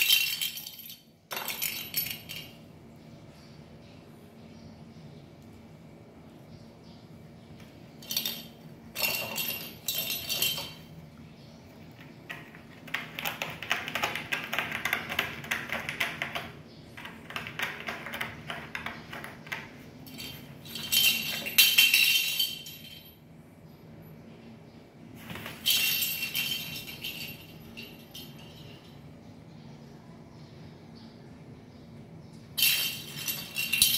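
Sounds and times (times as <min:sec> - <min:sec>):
toy ball jingling and rattling: 0:00.0 - 0:02.6, 0:08.0 - 0:11.0, 0:20.0 - 0:23.2, 0:25.3 - 0:29.0, 0:32.6 - 0:33.9.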